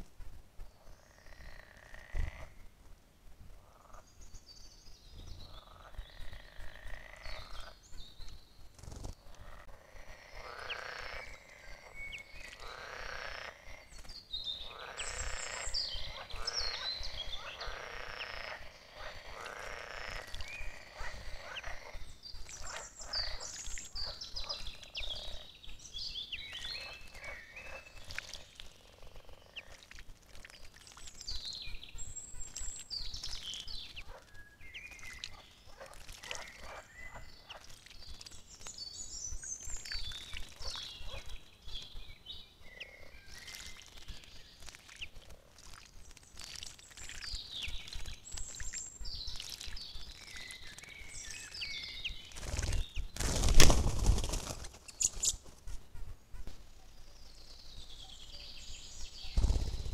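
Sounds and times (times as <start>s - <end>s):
songbirds singing: 0.6s - 2.7s, 3.5s - 59.9s
frogs croaking: 0.8s - 2.7s, 3.6s - 4.1s, 5.5s - 7.8s, 9.2s - 25.5s, 26.8s - 30.0s, 35.0s - 37.7s, 42.6s - 43.6s.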